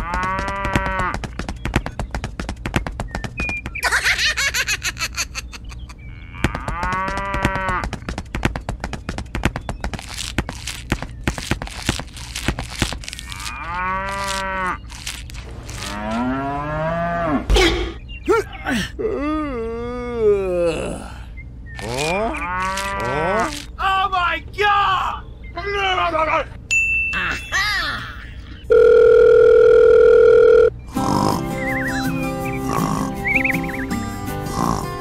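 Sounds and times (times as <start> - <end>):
cows mooing: 0.0 - 1.2, 6.1 - 7.9, 13.1 - 17.5, 21.8 - 23.6, 32.5 - 33.8.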